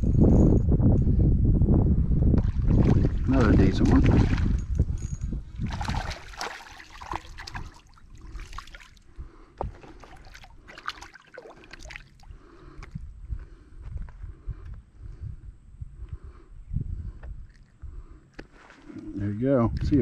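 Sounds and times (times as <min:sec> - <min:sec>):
water splashing: 0:02.4 - 0:04.7, 0:05.6 - 0:09.1, 0:09.7 - 0:13.0.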